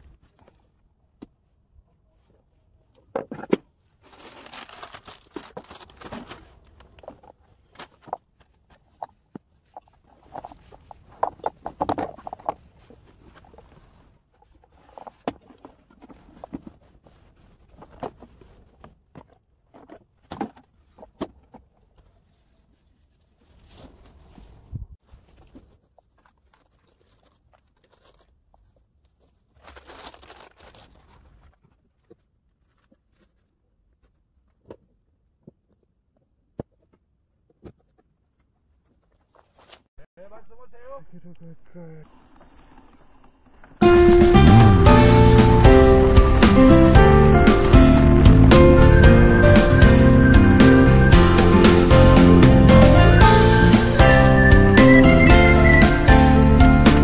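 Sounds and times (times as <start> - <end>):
rustling: 0.0 - 35.8, 36.5 - 39.9.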